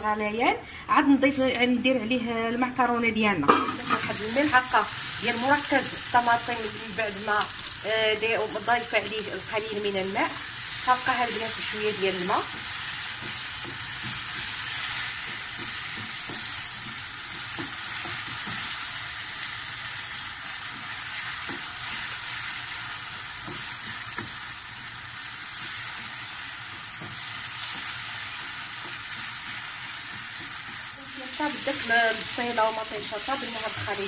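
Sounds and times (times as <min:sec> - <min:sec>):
sauce hissing in frying pan: 0:04.1 - 0:34.0
wooden spoon stirring: 0:10.9 - 0:19.0, 0:25.5 - 0:34.0.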